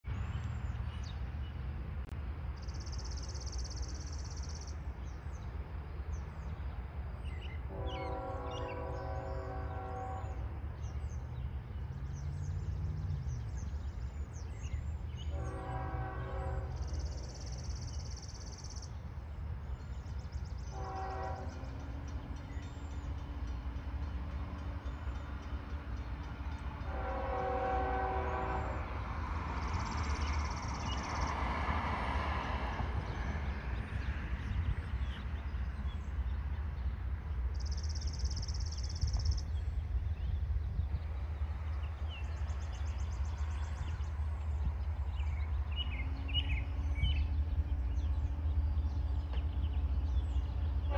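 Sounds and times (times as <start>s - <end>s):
low train rumble: 0.0s - 50.9s
locomotive air horn honks: 7.7s - 10.5s, 15.3s - 16.9s, 20.7s - 21.7s, 26.8s - 28.9s.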